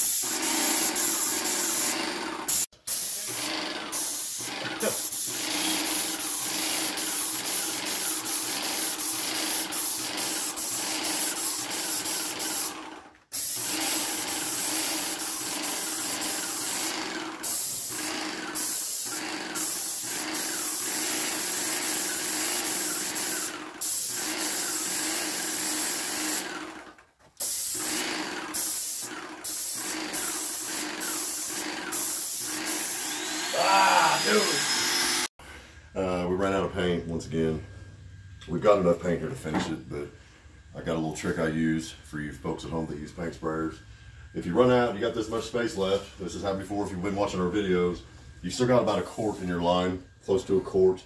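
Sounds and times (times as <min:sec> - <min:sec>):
paint sprayer hissing: 0:00.0 - 0:26.6, 0:27.3 - 0:35.3.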